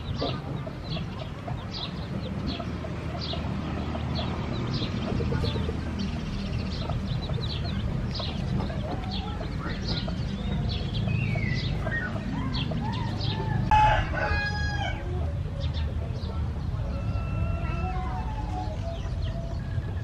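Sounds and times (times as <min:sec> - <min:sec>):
chickens clucking: 0:00.0 - 0:20.0
rooster crowing: 0:12.5 - 0:15.1, 0:16.9 - 0:18.7.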